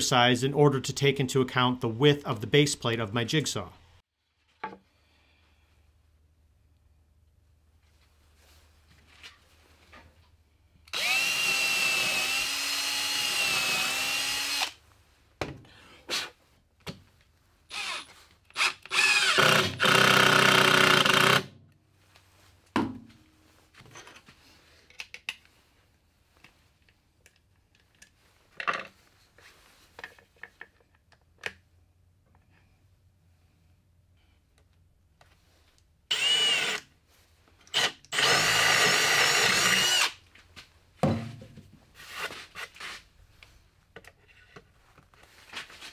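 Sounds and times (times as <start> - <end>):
cordless drill whining: 10.9 - 14.8, 17.7 - 21.5, 36.1 - 36.9, 37.7 - 40.2.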